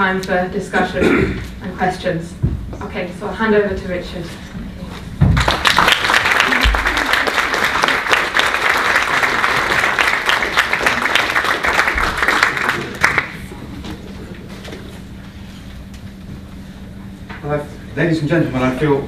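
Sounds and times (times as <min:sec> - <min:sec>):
audience applauding: 0:05.3 - 0:13.6.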